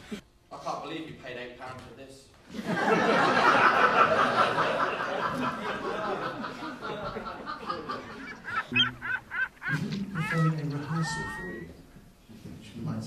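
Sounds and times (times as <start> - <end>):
audience laughing: 2.5 - 11.7
gull-like squawking call: 8.0 - 11.8.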